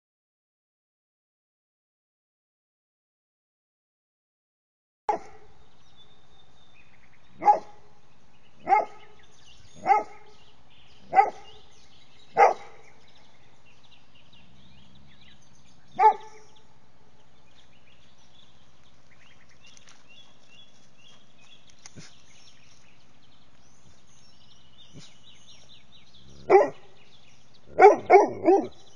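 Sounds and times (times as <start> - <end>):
dog barking: 5.1 - 5.5, 7.4 - 7.8, 8.6 - 9.1, 9.8 - 10.4, 11.1 - 11.6, 12.3 - 12.9, 16.0 - 16.5, 26.4 - 26.9, 27.7 - 28.8.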